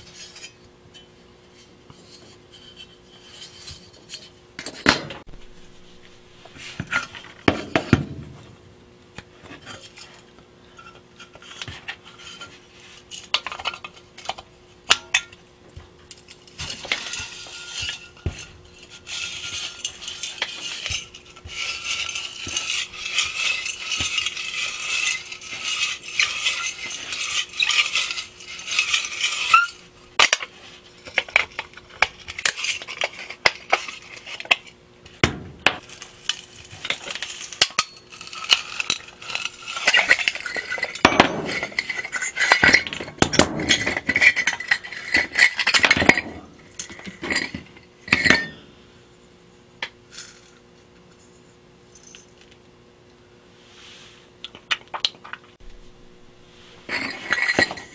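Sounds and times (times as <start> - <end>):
metal-on-metal scraping: 0.0 - 8.4, 16.1 - 48.7, 55.6 - 57.9.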